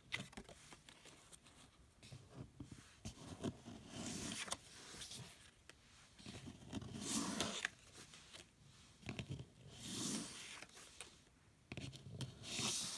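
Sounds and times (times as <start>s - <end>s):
cards sliding over cards: 6.9s - 8.5s, 9.8s - 11.2s.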